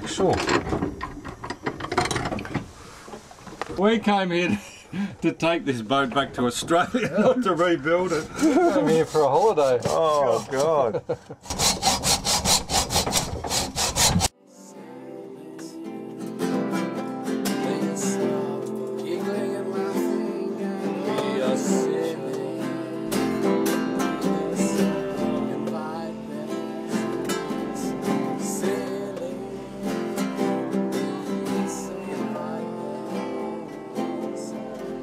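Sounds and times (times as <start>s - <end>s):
strummed acoustic guitar: 11.6s - 35.0s.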